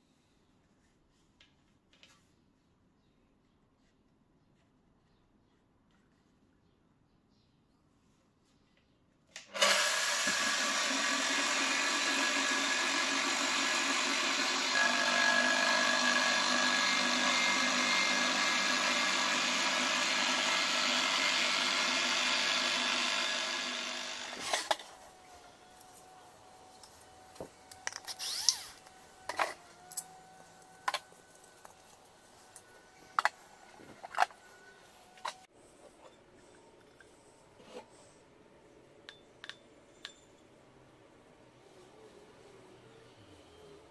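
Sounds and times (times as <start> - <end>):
angle grinder running: 9.6 - 34.4.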